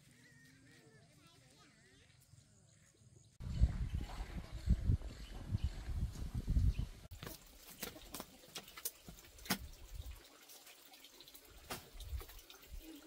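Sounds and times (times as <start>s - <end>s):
faint water sounds: 7.0s - 13.0s.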